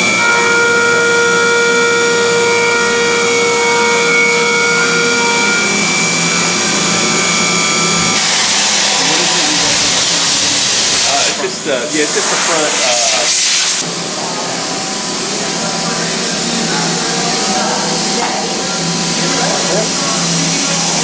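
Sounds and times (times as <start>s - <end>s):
milling machine whine: 0.0s - 21.0s
loud coolant hiss: 5.4s - 21.0s.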